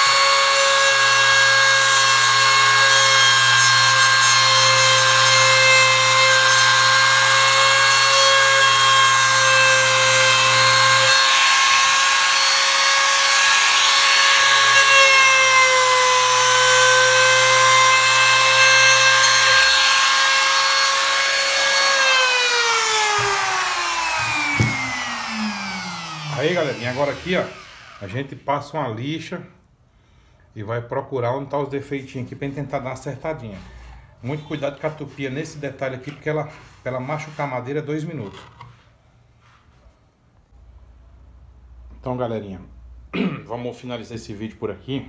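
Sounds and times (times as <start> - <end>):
router bit cutting wood: 0.0 - 28.2
trim router whining: 0.0 - 28.2.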